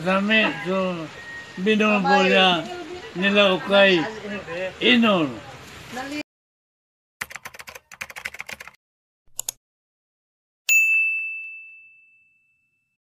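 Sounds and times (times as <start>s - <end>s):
typing-like clicks: 7.2s - 9.6s
bell ding: 10.7s - 13.0s.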